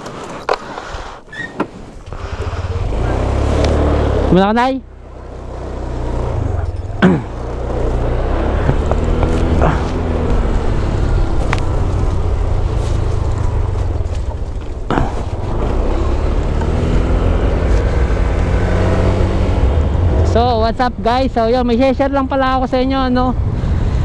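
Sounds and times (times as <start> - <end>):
road and wind rumble: 0.0 - 24.0
scooter engine running: 2.1 - 20.2.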